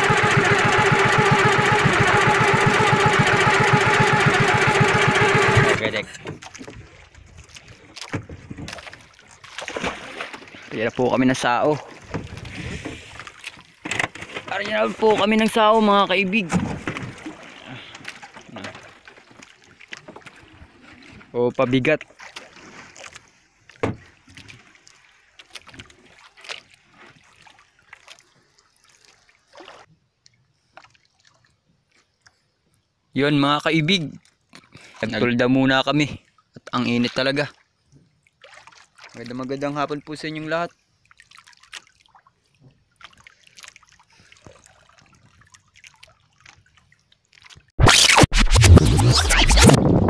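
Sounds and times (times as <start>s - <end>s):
water wash: 0.0s - 6.8s
wind: 0.0s - 50.0s
water drips and trickles: 22.0s - 32.8s, 36.1s - 40.2s, 41.0s - 47.7s
knocks on wooden boat: 23.8s - 24.1s.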